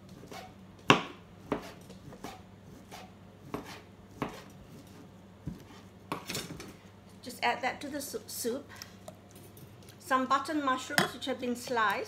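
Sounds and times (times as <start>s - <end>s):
knife chopping on a board: 0.2s - 4.9s.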